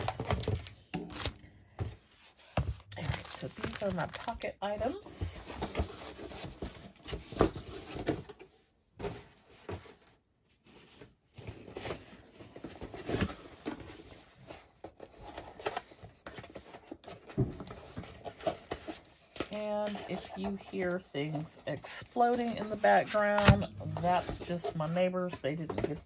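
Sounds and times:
paper and plastic rustling: 0.0 - 26.0.

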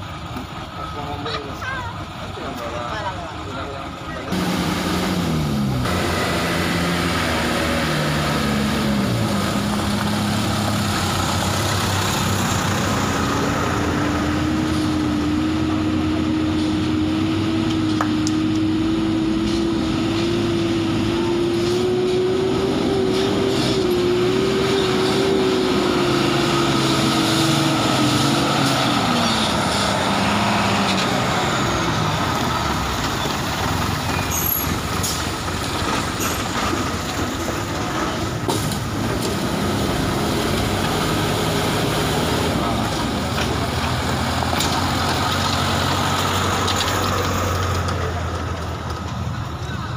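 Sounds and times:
diesel truck engines labouring: 0.0 - 49.9.

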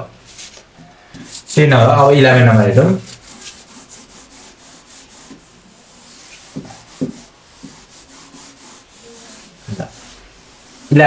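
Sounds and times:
eraser rubbing on whiteboard: 1.2 - 1.6, 2.8 - 11.0
soft knocks: 6.5 - 7.9.

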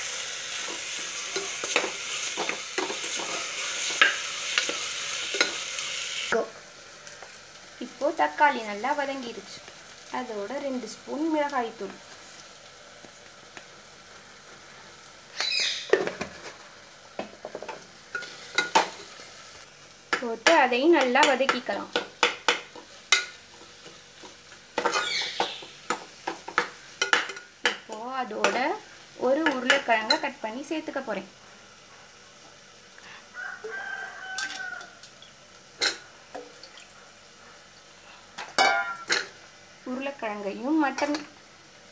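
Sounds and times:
masala sizzling in pot: 0.0 - 41.9
rooster crowing: 33.3 - 35.1.

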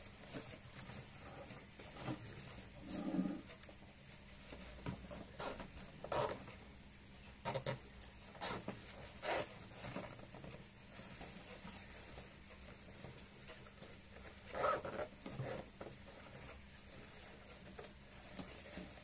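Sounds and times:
cloth bag rustling: 8.3 - 19.0.

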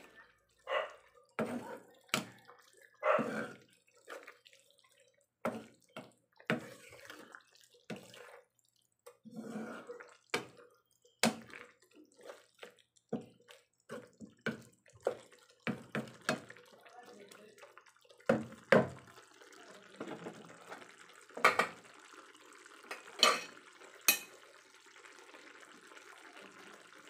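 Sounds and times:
sauce bubbling and sloshing: 0.0 - 27.0
wooden spatula scraping a pan: 1.4 - 2.3, 3.1 - 4.4, 5.5 - 8.5, 9.2 - 10.6.

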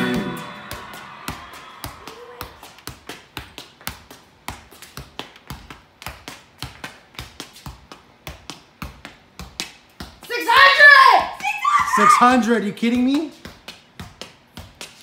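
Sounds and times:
football kicks: 0.0 - 10.2.

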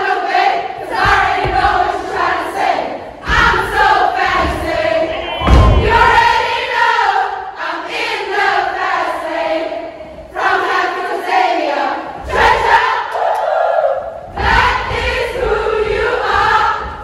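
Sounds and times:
women singing chant in unison: 0.0 - 17.0
low thud: 3.3 - 6.4.

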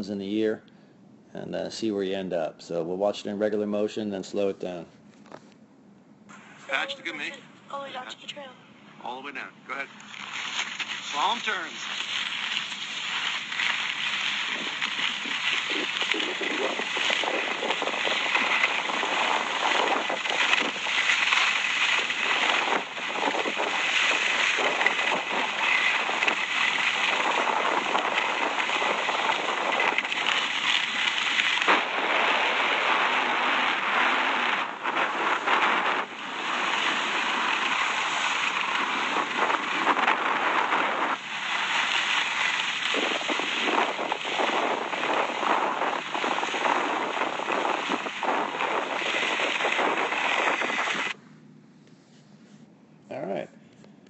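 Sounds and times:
skis scraping on packed snow: 10.1 - 51.2.

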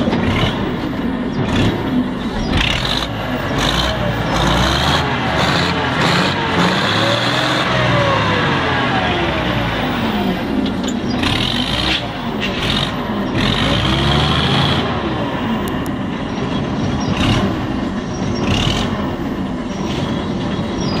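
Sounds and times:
wheel loader engine running: 0.0 - 21.0.

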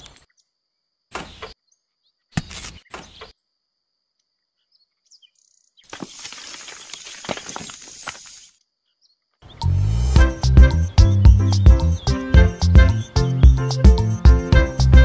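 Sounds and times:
gravel pouring out of dish: 5.9 - 8.5.

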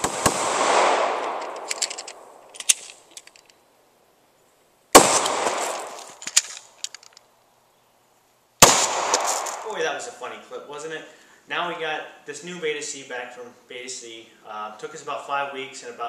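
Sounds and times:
pistol shots with echo: 0.0 - 1.6, 5.0 - 6.0, 8.6 - 9.8
light clicks and rattles: 1.3 - 3.6, 5.8 - 7.3.

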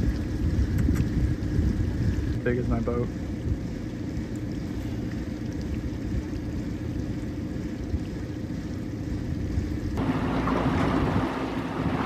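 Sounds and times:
boat motor idling: 0.0 - 12.0
faint steady hum: 0.0 - 12.0.

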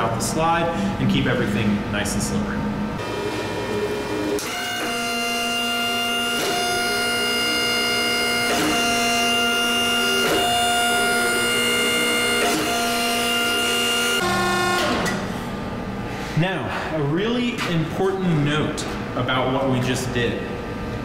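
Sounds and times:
hydraulic pump whining: 3.0 - 16.4.

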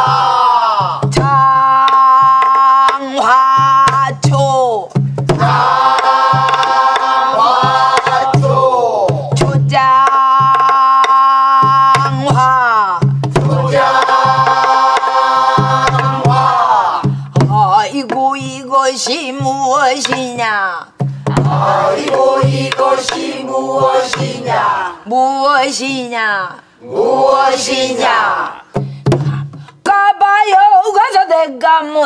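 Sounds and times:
barrel drum strokes: 13.0 - 17.6, 21.0 - 24.7.

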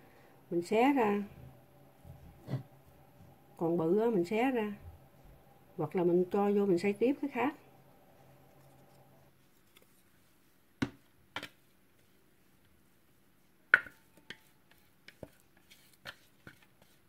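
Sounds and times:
utensil tapping and scraping bowl: 13.7 - 17.0.

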